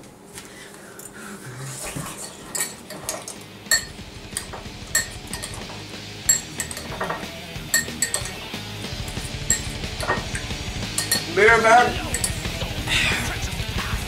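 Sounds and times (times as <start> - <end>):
spoons clinking on ceramic bowls: 2.2 - 12.6.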